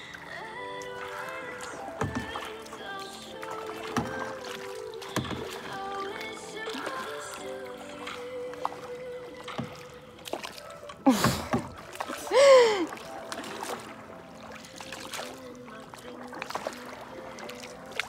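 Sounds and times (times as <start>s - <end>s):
water splashing: 0.0s - 18.0s
paddle knocks: 1.9s - 2.7s, 3.6s - 6.9s, 8.1s - 12.2s
woman laughing: 11.0s - 12.9s
woman crying out: 12.2s - 12.9s.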